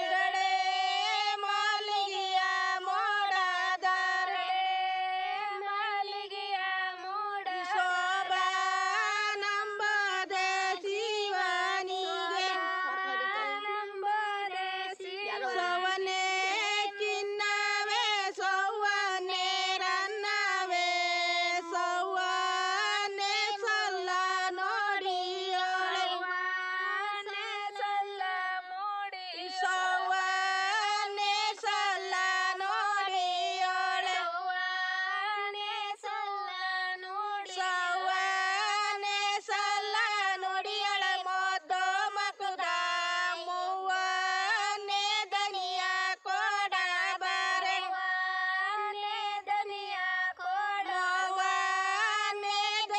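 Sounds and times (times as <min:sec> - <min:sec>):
woman singing unaccompanied: 0:00.0 - 0:52.9.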